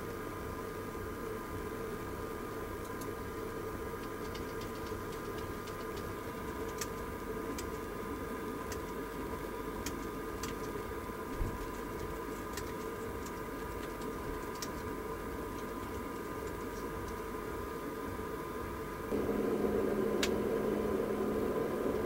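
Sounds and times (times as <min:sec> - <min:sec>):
background hum with faint whine: 0:00.0 - 0:22.0
keyboard and mouse clicks: 0:04.0 - 0:07.8, 0:09.8 - 0:10.8, 0:11.4 - 0:14.9.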